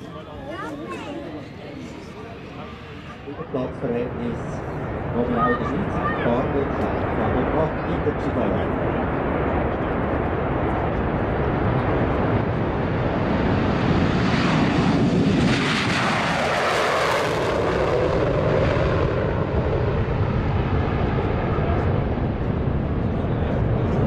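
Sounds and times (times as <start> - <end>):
jet engine roar: 0.0 - 24.0.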